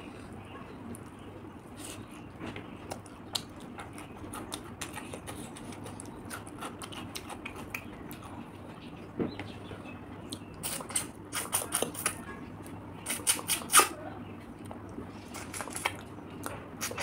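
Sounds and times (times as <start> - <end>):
wet sucking slurps while eating: 10.6 - 12.1, 13.0 - 13.9.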